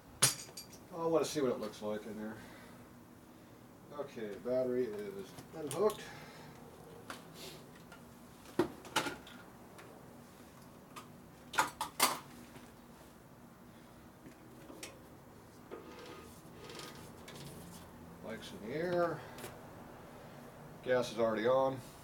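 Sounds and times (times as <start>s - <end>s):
faint room hum: 0.0s - 22.0s
tools clinking and knocking: 0.2s - 0.8s.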